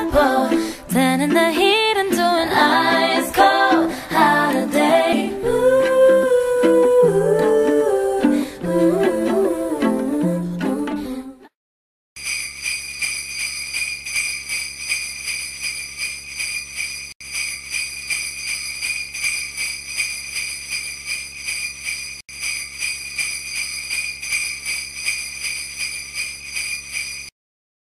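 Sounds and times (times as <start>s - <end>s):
jingle bells shaken: 12.2s - 27.3s.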